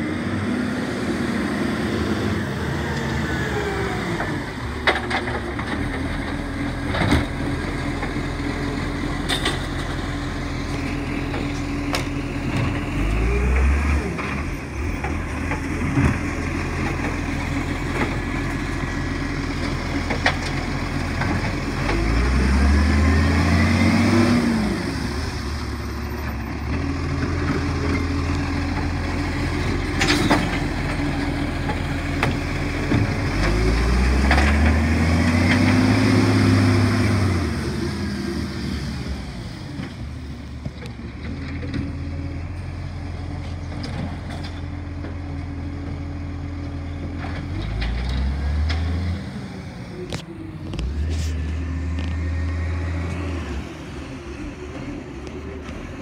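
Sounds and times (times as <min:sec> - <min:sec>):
garbage truck engine revving: 0:00.0 - 0:40.0.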